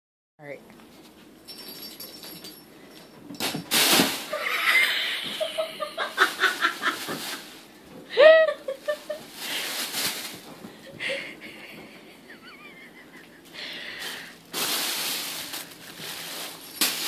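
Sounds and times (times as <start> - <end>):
plastic bags rustling and crinkling: 6.0 - 7.6, 8.8 - 10.8, 14.0 - 17.0.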